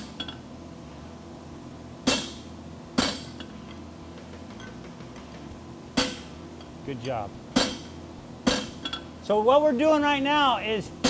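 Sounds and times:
sledgehammer striking metal: 2.0s - 2.4s, 7.6s - 8.9s.

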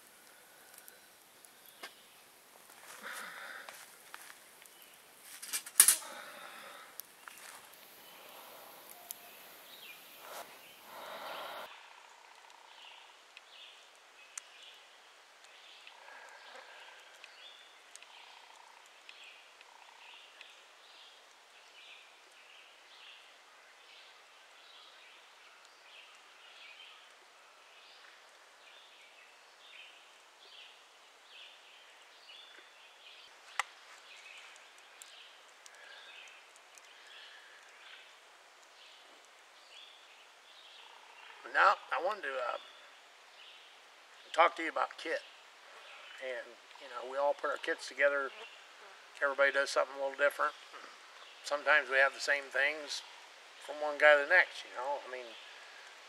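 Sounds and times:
low noise: 0.0s - 16.7s
small birds chirping: 0.0s - 56.0s.

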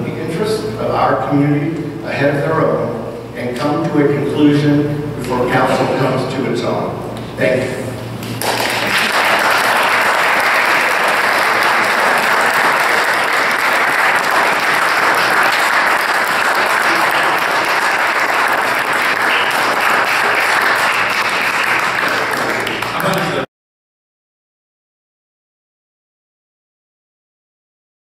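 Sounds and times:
audience applauding: 8.2s - 23.5s.

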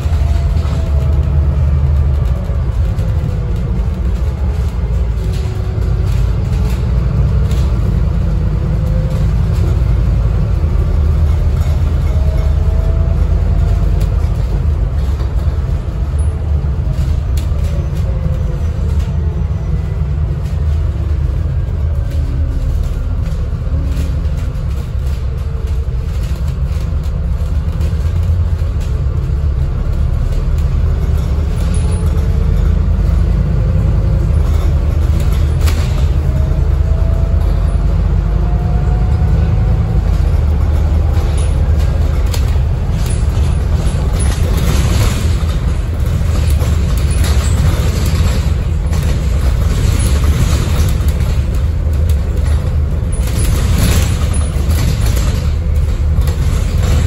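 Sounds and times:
bus diesel engine rumble: 0.0s - 57.0s
road noise: 0.0s - 57.0s.

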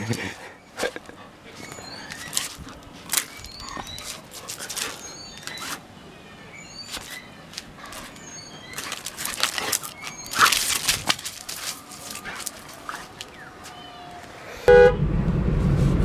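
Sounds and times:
small birds chirping: 0.4s - 14.6s
dog scuffling with grass stalk: 1.6s - 5.8s, 6.8s - 13.8s.

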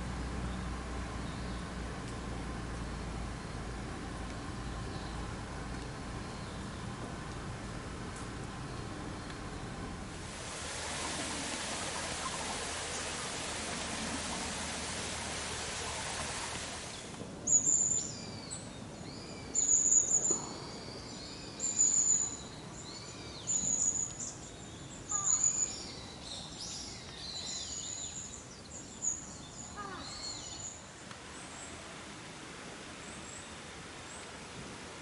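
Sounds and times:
steady rushing noise: 10.1s - 17.1s
bird calling: 10.6s - 18.1s, 25.1s - 25.7s, 29.7s - 30.7s.

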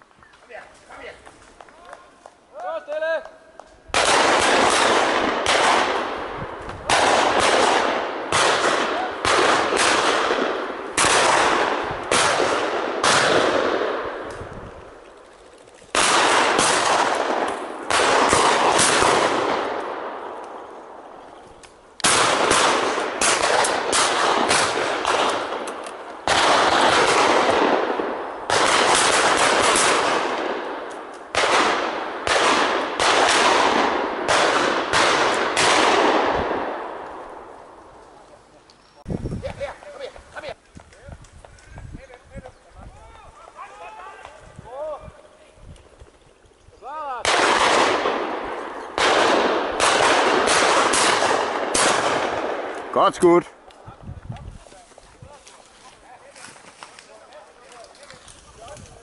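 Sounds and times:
shotguns firing with echo: 3.9s - 14.5s, 15.9s - 21.1s, 22.0s - 37.8s, 47.1s - 53.6s.

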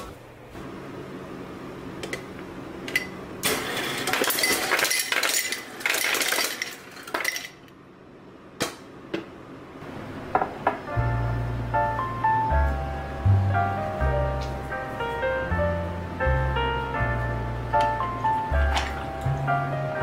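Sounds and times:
ice cubes clattering into glass: 3.6s - 7.6s.

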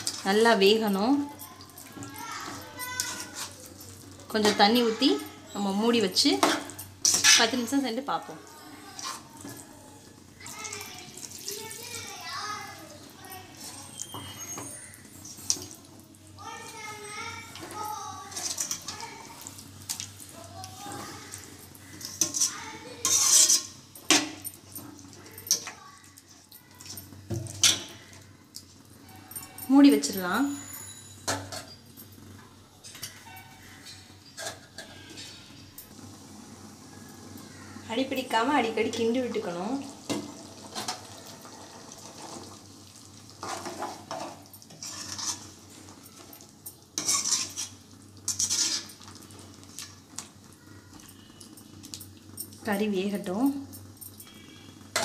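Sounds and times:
metal ladle scraping pan: 6.4s - 7.7s, 21.9s - 24.4s, 43.4s - 46.3s, 47.0s - 49.1s.

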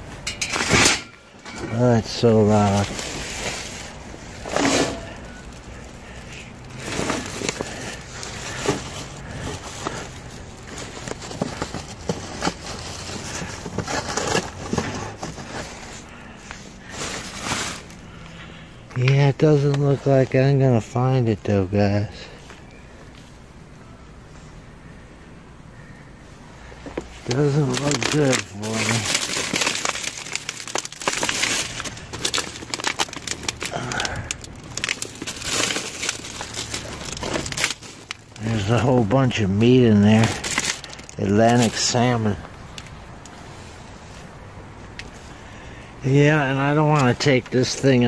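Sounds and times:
plastic bags crinkling: 0.0s - 20.2s, 26.9s - 43.8s
trash crackling and crunching: 0.0s - 24.0s, 26.6s - 48.0s.

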